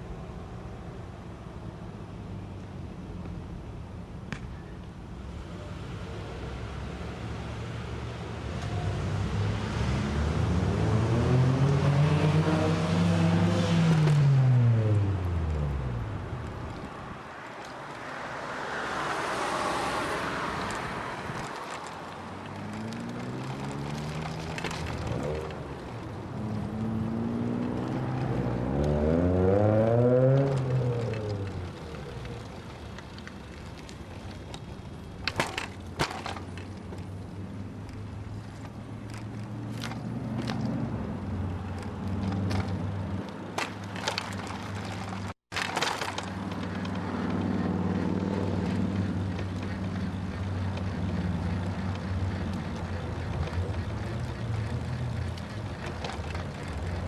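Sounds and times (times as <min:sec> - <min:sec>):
rolling and wind noise: 0:00.0 - 0:57.0
vehicle engine running: 0:46.6 - 0:57.0.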